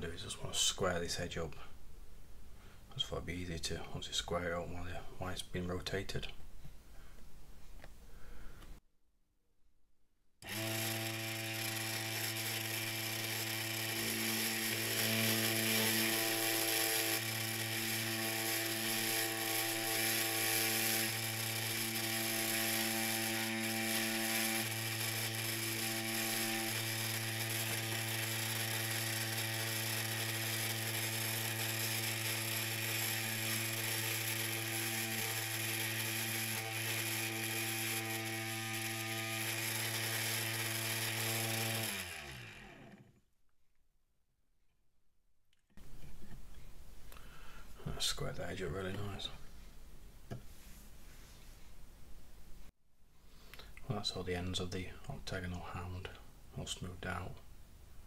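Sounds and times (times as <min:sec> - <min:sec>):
file against spinning wood: 0:10.4 - 0:43.1
lathe motor humming: 0:10.4 - 0:43.1.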